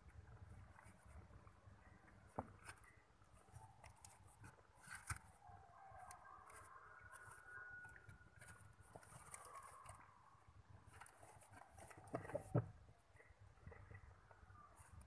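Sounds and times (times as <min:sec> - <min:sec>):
kittens rustling on paper: 0:00.2 - 0:05.4, 0:06.0 - 0:15.0
paper crinkle: 0:00.7 - 0:05.4, 0:06.0 - 0:10.2, 0:10.8 - 0:12.6.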